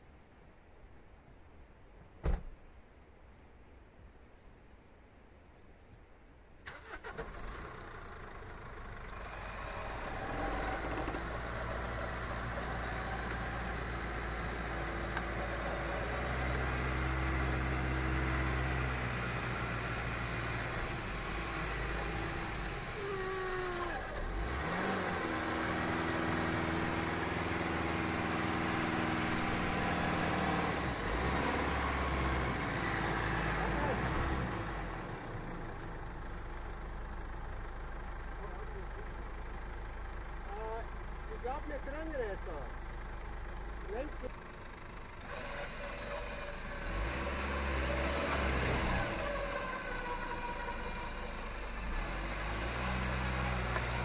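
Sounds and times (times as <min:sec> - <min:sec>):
van engine running: 0:06.7 - 0:54.0
electric winch hauling cable: 0:09.1 - 0:34.9, 0:45.0 - 0:54.0.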